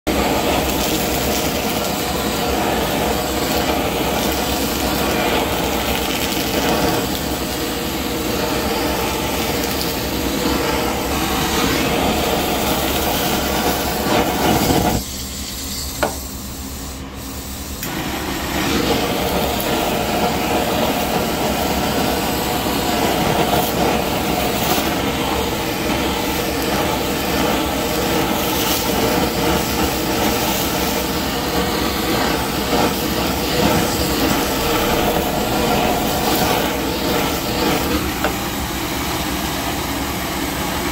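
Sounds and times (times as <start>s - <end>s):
blowtorch hissing: 0.0s - 40.9s.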